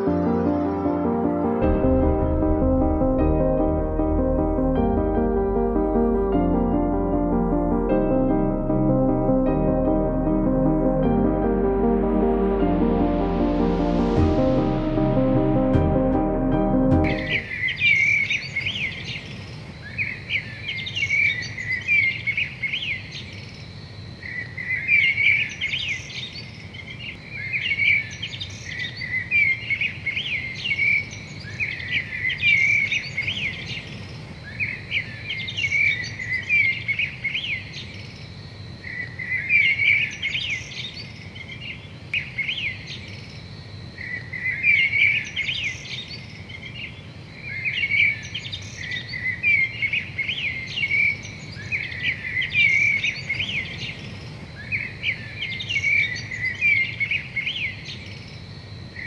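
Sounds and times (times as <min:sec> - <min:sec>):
songbirds chirping: 0:17.1 - 0:59.0.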